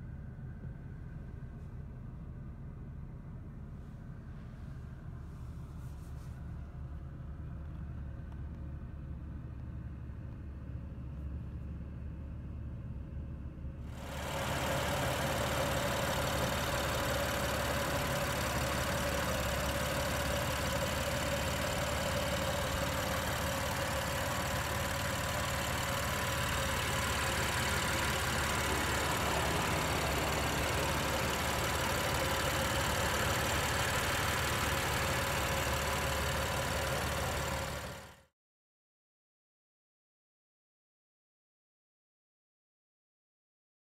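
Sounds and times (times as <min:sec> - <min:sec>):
engine whine: 0:13.9 - 0:38.1
car engine idling: 0:13.9 - 0:38.2.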